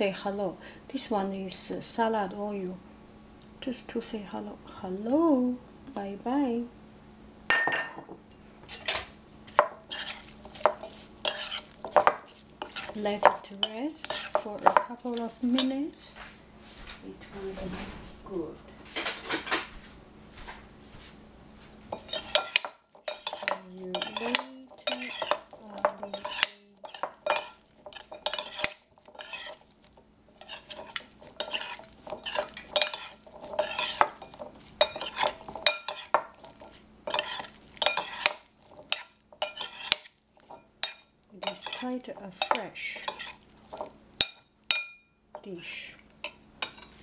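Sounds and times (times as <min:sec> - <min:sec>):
cutlery clinking and scraping bowl: 0:07.5 - 0:15.8, 0:18.9 - 0:19.7, 0:21.9 - 0:45.5, 0:46.2 - 0:47.0.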